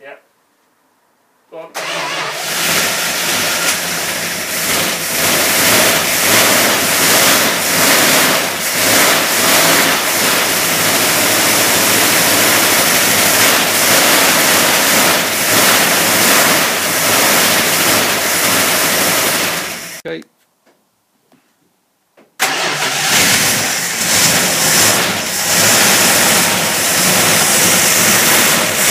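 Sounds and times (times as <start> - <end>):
car engine running rough: 1.8 - 20.0, 22.4 - 28.9.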